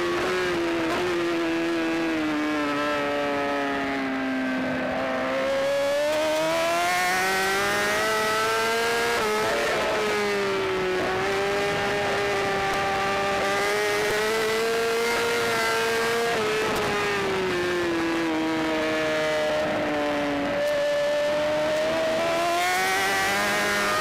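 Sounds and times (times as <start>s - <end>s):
racing motorcycle engine revving: 0.0s - 24.0s.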